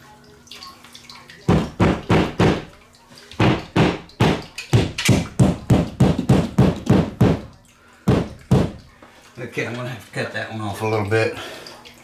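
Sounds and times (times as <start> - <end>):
hammer striking wall anchors: 1.5 - 2.7, 3.4 - 7.5, 8.1 - 8.8.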